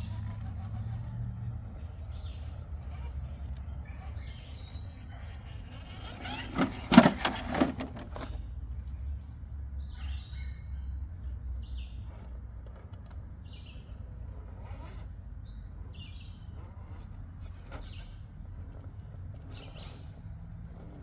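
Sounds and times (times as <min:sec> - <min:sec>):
songbirds chirping: 0:00.0 - 0:21.0
loud knocks and scrapes: 0:05.8 - 0:08.4.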